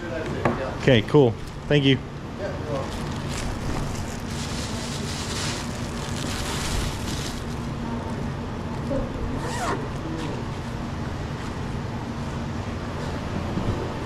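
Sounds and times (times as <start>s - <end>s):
steady low hum: 0.0s - 14.0s
fabric rustling: 2.8s - 7.7s.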